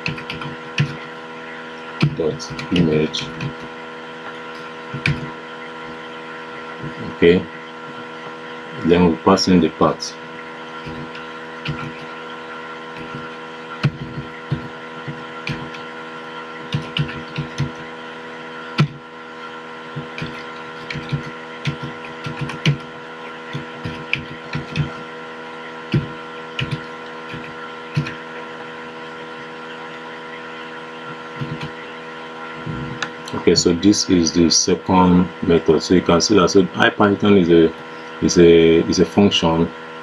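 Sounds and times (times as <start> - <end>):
keyboard keys clicking: 0.0 - 1.0, 4.5 - 5.3, 10.8 - 12.1, 12.9 - 15.8, 16.7 - 17.8, 20.0 - 22.9, 23.5 - 25.0, 25.9 - 28.2
steady electrical hum: 0.0 - 40.0.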